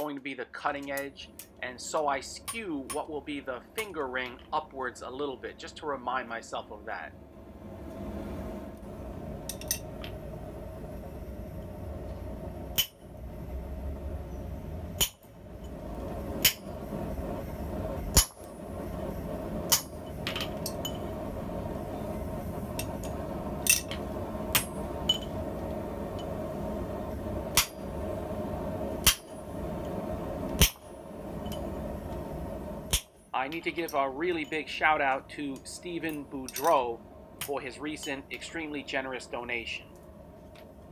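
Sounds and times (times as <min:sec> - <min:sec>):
steady hum: 0:00.0 - 0:40.9
hammer striking metal punch: 0:18.1 - 0:18.5.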